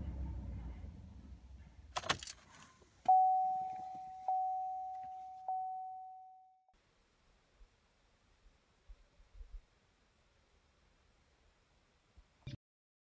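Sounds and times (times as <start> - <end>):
ignition keys jangling: 1.9 - 5.6
instrument cluster chime dinging: 3.1 - 6.6.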